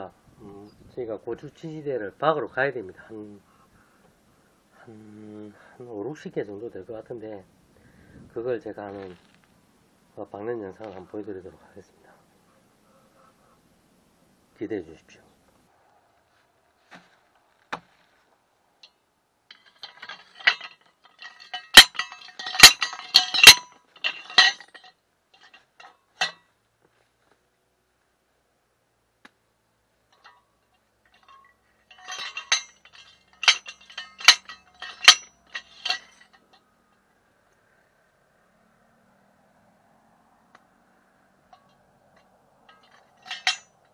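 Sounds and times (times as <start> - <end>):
sliding hammer clanking on pipe: 19.5 - 26.4, 31.1 - 36.5, 42.7 - 43.8.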